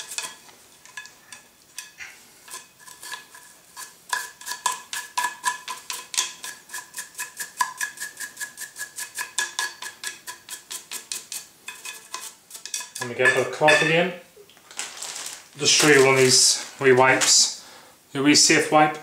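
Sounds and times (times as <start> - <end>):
toothbrush scrubbing metal: 0.0 - 13.5.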